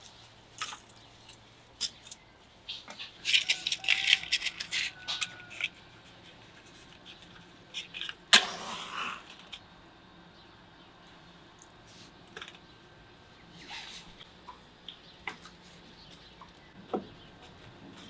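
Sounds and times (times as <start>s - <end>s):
wooden sticks clattering on stone: 2.9s - 5.8s.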